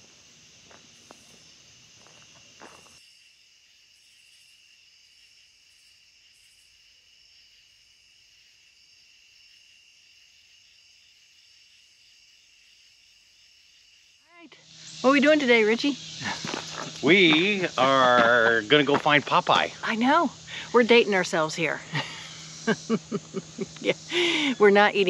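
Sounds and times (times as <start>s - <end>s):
insects chorus: 0.0s - 25.0s.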